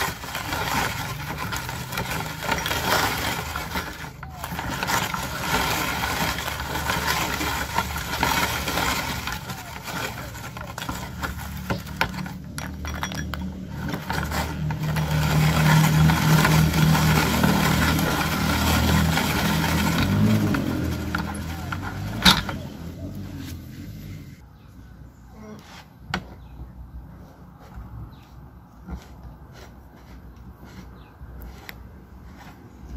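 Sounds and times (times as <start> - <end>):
hand-cranked meat grinder grinding: 0.0 - 23.1.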